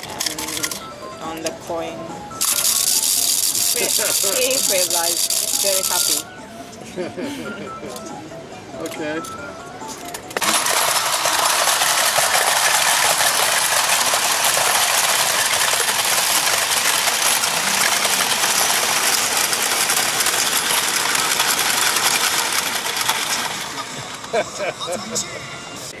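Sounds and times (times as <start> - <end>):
whirring and clattering gear motors: 0.0 - 0.8, 2.4 - 6.2, 10.0 - 25.2.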